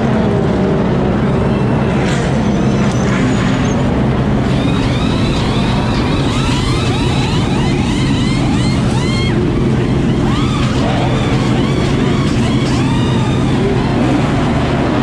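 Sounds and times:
race car engines rumbling: 0.0s - 15.0s.

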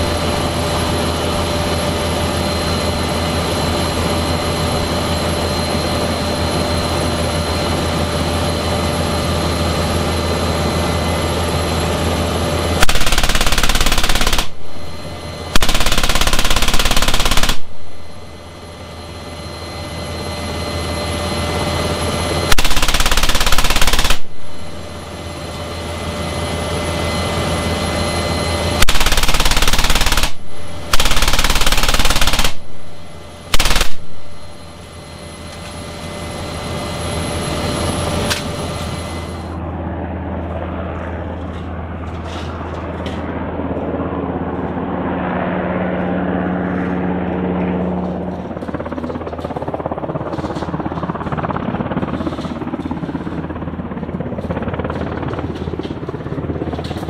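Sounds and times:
helicopter turbine and rotor noise: 0.0s - 57.0s
heavy machine gun firing bursts: 12.8s - 14.7s, 15.5s - 17.8s, 22.5s - 24.3s, 28.8s - 32.6s, 33.5s - 34.2s.

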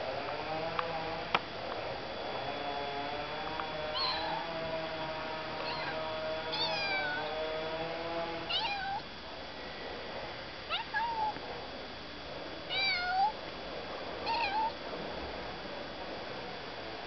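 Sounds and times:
kitten meowing: 4.0s - 4.5s, 5.6s - 7.3s, 8.5s - 9.0s, 10.7s - 11.4s, 12.7s - 13.4s, 14.3s - 14.8s.

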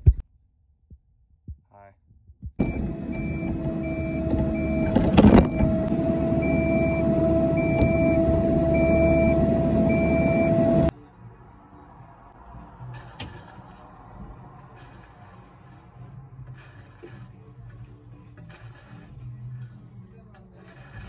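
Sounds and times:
backup alarm beeping: 2.6s - 10.9s
diesel engine running: 2.6s - 10.9s.

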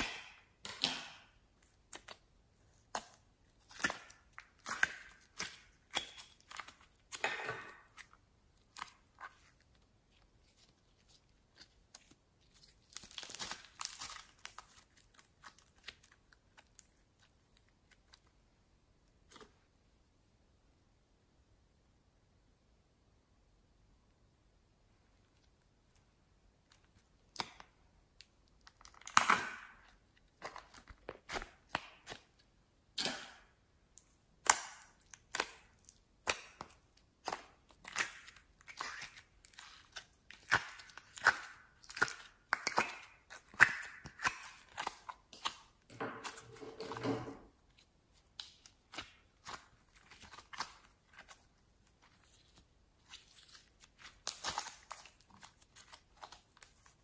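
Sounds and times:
slime stretching and tearing: 7.9s - 18.3s, 28.2s - 32.4s, 34.4s - 46.9s, 47.5s - 57.0s
slime popping and crackling: 11.0s - 18.1s, 26.6s - 46.4s, 47.6s - 57.0s.

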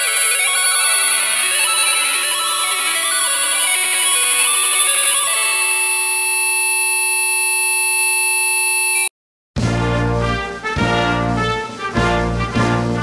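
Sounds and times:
distorted electronic buzzing: 0.0s - 9.1s
loud bass-heavy music: 9.6s - 13.0s.

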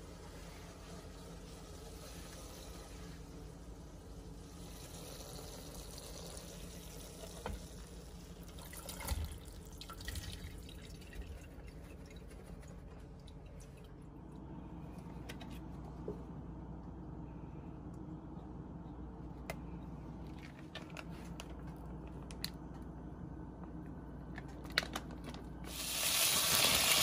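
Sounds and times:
water trickling into a metal sink: 8.4s - 12.4s.

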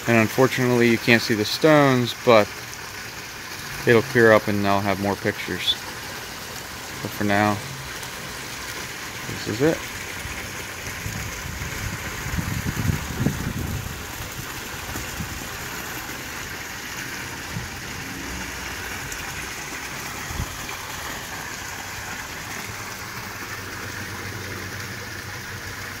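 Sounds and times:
water pouring into a pond: 0.0s - 26.0s.

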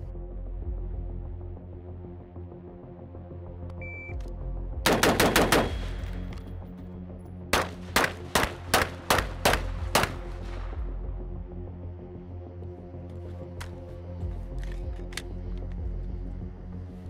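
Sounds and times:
background music: 0.0s - 17.0s
gunshots: 4.8s - 6.2s, 7.5s - 10.5s.

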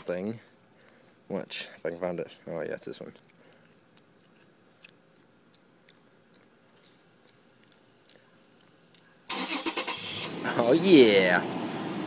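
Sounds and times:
car engine cranking and starting: 9.3s - 10.6s.

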